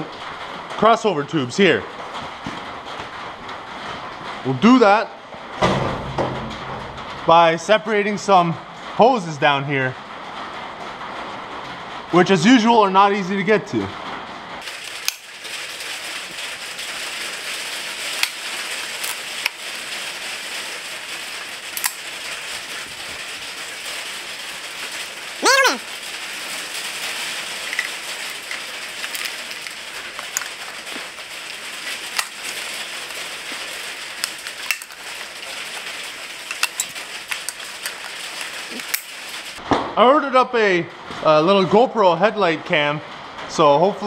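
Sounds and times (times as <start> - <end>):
steady hiss: 14.6 - 39.6
hand tools clicking and knocking: 21.7 - 22.0, 26.8 - 39.2
short voice sound: 25.4 - 25.9.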